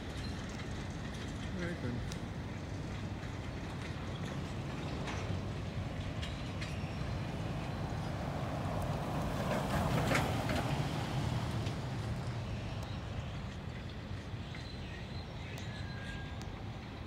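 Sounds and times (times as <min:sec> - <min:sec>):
pickup truck driving past: 0:07.2 - 0:12.5.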